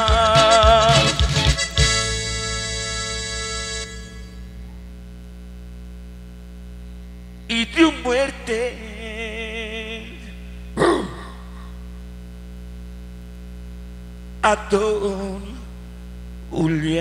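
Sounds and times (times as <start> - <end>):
live band final chord: 0.0 - 4.7
mains hum from sound system: 0.0 - 17.0
man calling into microphone: 16.5 - 17.0.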